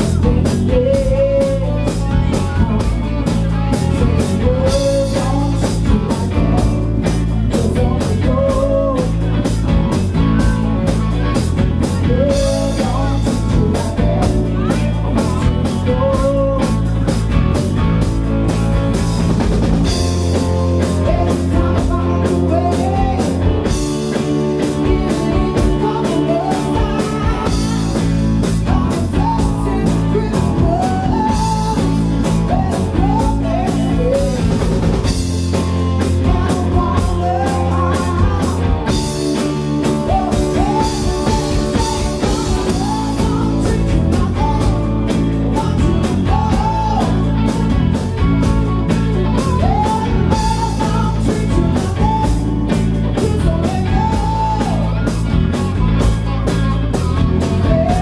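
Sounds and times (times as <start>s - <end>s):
woman singing: 0.0s - 17.0s, 20.8s - 35.0s, 36.0s - 48.2s, 49.1s - 55.1s, 57.4s - 58.0s
rock band playing: 0.0s - 58.0s.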